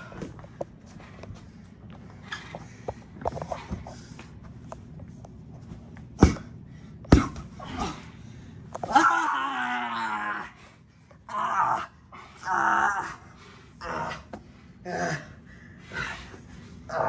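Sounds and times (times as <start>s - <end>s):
body impacts: 7.1s - 8.0s
drawn-out pained cry: 8.9s - 10.6s, 11.3s - 16.2s.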